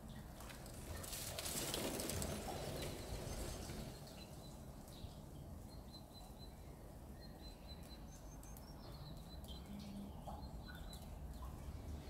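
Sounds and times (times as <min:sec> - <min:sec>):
low steady outdoor rumble: 0:00.0 - 0:12.0
small birds chirping: 0:02.4 - 0:12.0.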